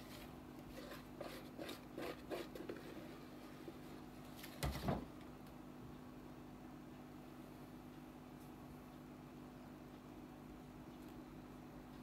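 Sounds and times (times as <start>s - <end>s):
spatula scraping plastic bowl: 0.0s - 3.2s
faint steady hum: 0.0s - 12.0s.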